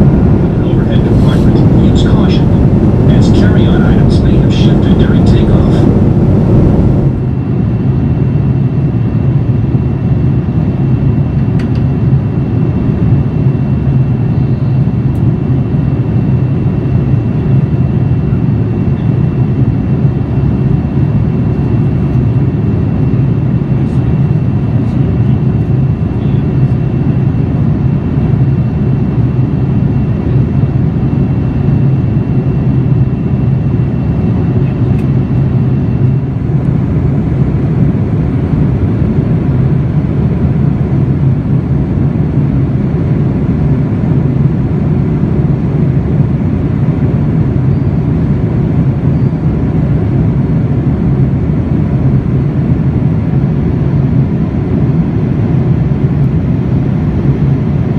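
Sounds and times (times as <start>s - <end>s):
aircraft cabin engine roar: 0.0s - 57.9s.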